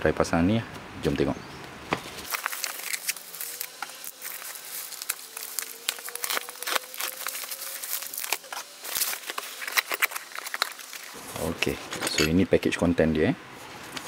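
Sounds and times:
bubble wrap crinkling: 2.1s - 11.8s.

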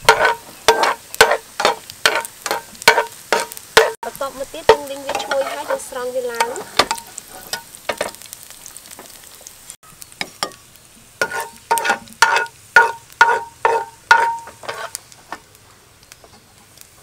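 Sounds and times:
metal spatula scraping metal: 0.0s - 4.0s, 4.7s - 8.1s, 11.2s - 15.0s.

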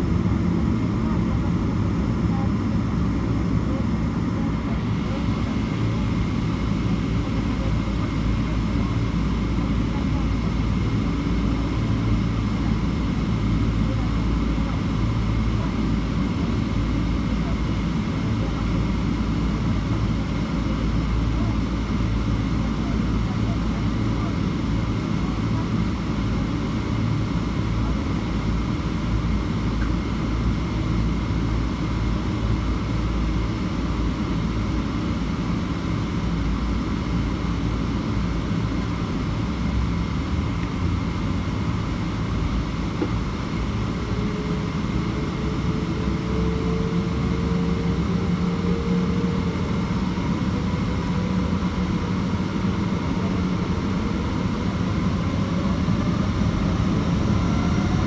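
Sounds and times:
jet engines rumbling and whining: 0.0s - 58.0s
rising whine: 55.0s - 58.0s.

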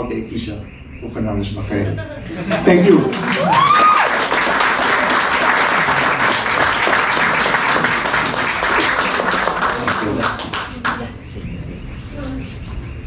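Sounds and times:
audience applauding: 2.3s - 11.2s
person whooping: 3.2s - 4.3s.

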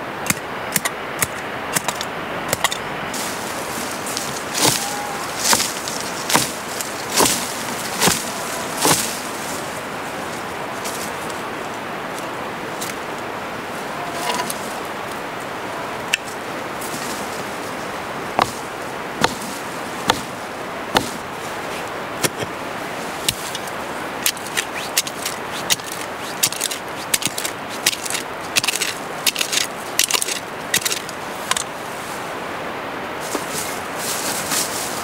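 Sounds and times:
steady background hiss: 0.0s - 35.0s
small blade digging dry soil: 0.3s - 9.9s, 18.3s - 31.8s.

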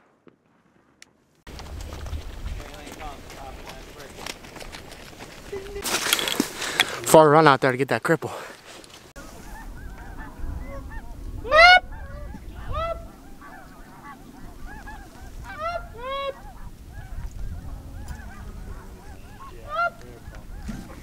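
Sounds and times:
snow geese yelping: 9.2s - 21.0s.

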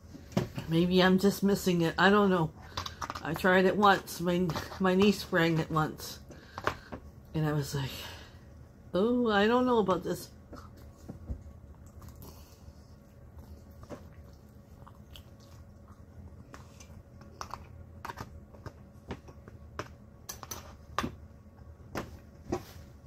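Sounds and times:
person chewing: 11.6s - 18.2s.

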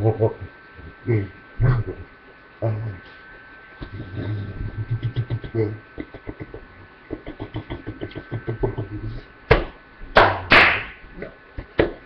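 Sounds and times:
loud hand whacks near microphone: 9.5s - 11.0s.

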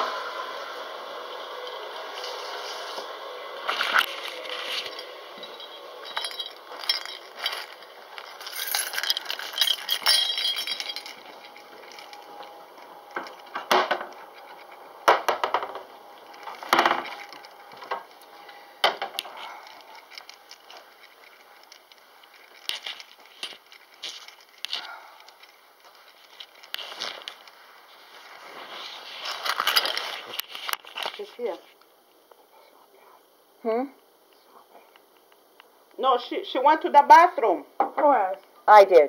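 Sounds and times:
clicks and clinks: 3.9s - 12.3s
camera handling rustle: 19.2s - 31.3s.

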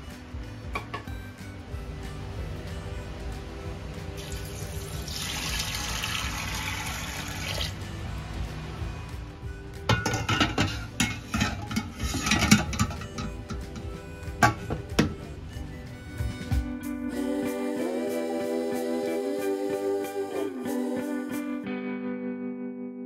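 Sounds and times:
background music: 0.0s - 23.0s
water pouring into a pot: 4.2s - 7.8s
metal lid clanking and clicking: 9.9s - 13.8s.

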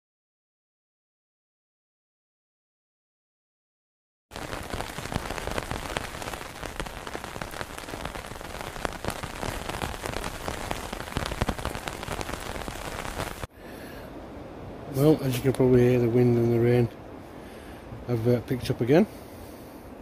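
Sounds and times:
heavy rain on a tarp: 4.3s - 13.5s.

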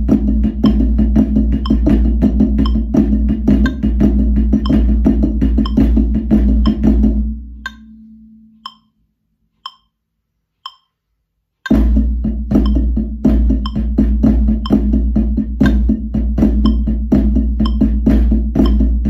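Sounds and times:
backing track music: 0.0s - 7.3s, 11.7s - 19.0s
drum sticks playing flams: 0.0s - 7.9s, 11.6s - 19.0s
metronome clicks: 1.6s - 2.0s, 2.6s - 2.9s, 3.6s - 3.9s, 4.6s - 4.9s, 5.6s - 6.0s, 6.6s - 6.8s, 7.6s - 9.0s, 9.6s - 10.0s, 10.6s - 11.9s, 12.6s - 12.9s, 13.6s - 13.9s, 15.6s - 16.0s, 16.6s - 16.9s, 17.6s - 17.9s, 18.6s - 19.0s.

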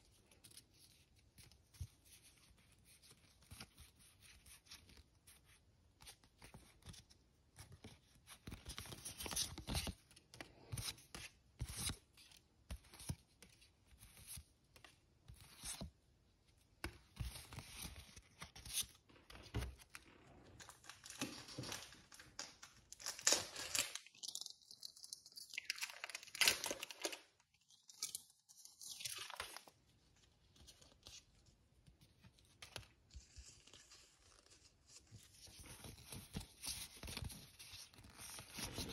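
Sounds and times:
packaging rustling and tearing: 20.5s - 29.7s.

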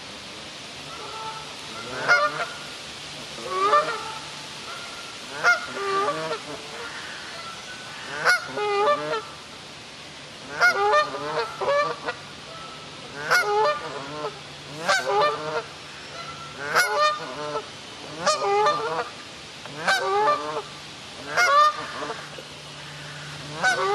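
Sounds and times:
goose honking: 0.9s - 2.6s, 3.4s - 9.4s, 10.4s - 19.1s, 19.7s - 23.9s.

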